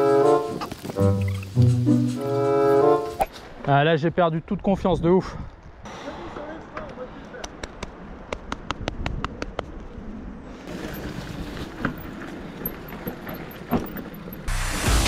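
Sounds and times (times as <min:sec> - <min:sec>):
bike rumbling over trail: 0:10.6 - 0:15.0.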